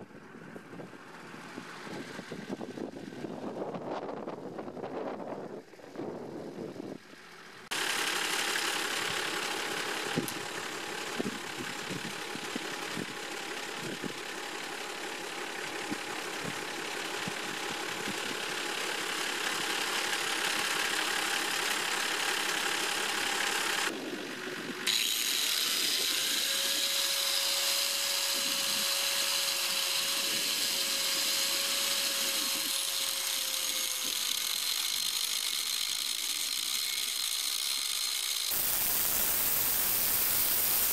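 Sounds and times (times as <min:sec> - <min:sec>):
angle grinder running: 0:24.8 - 0:40.9
disc cutting steel whine: 0:24.9 - 0:40.9.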